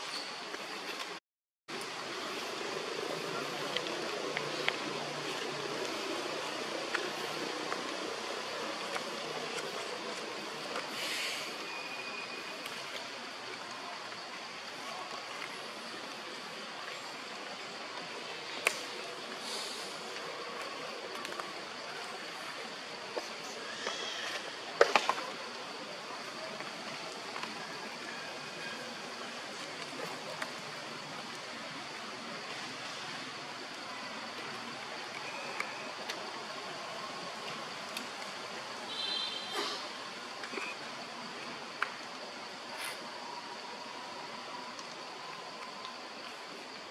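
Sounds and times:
rushing outdoor background noise: 0.0s - 46.9s
brief hiss: 10.9s - 11.7s, 18.7s - 20.1s
faint sharp clicks: 18.0s - 19.0s.

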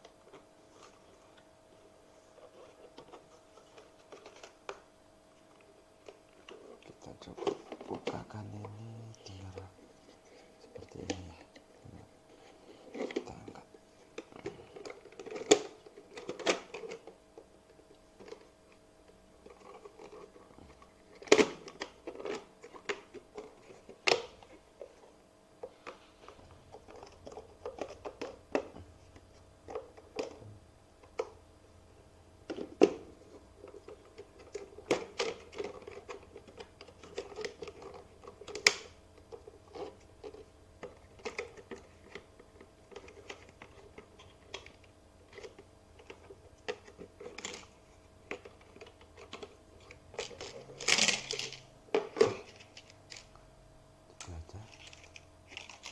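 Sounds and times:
plastic housing clicking and rubbing: 19.4s - 26.0s.

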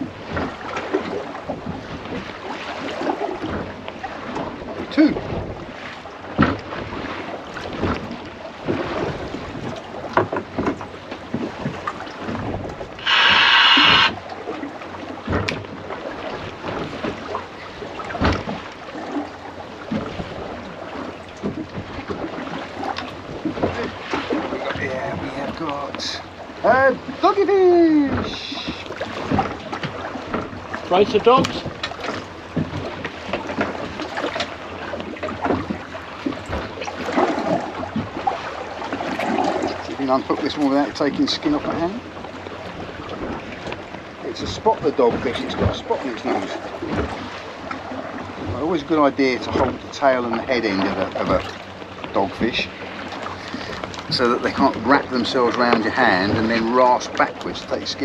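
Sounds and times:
sea noise: 0.0s - 58.0s
wind on the microphone: 4.4s - 5.8s
knocks on boat deck: 6.4s - 6.6s, 15.2s - 15.7s, 18.1s - 18.6s, 31.3s - 33.8s
wind on microphone: 11.4s - 14.3s
loud buzzing tone: 13.0s - 14.2s.

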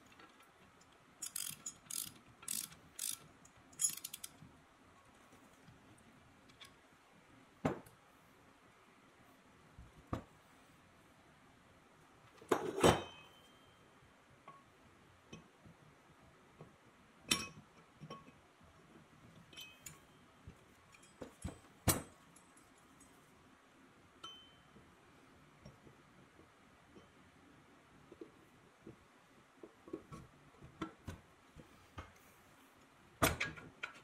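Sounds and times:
metal parts clinking and knocking: 1.2s - 4.4s.

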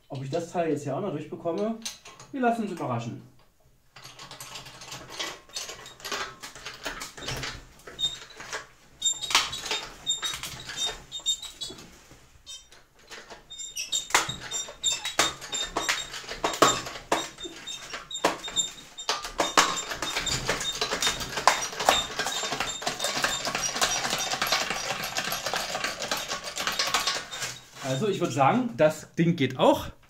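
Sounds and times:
bottle jack clicking and creaking: 1.6s - 2.8s, 3.9s - 11.9s, 12.5s - 28.4s
short high squeaks: 9.0s - 28.1s.

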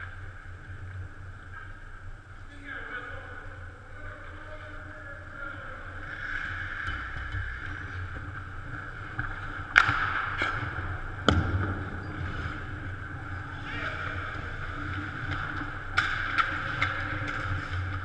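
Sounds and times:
skates scraping on ice: 5.2s - 18.0s.

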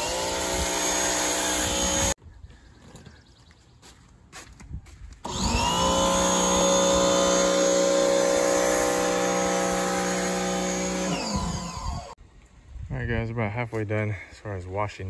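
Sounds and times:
pressure washer motor running: 0.0s - 2.2s, 5.3s - 12.2s.

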